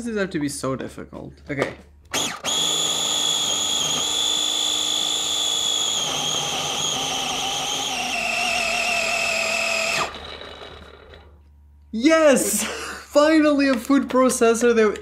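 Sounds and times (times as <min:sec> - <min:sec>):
food processor motor whining: 0:02.1 - 0:11.5.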